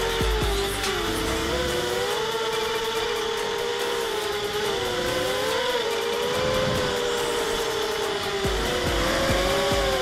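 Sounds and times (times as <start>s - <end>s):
drone motors whining: 0.0s - 10.0s.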